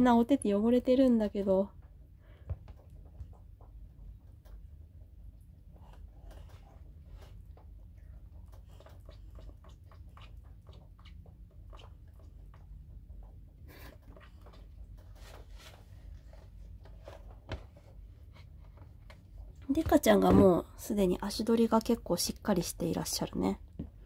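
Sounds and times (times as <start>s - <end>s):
rabbits shuffling and walking: 14.2s - 19.6s.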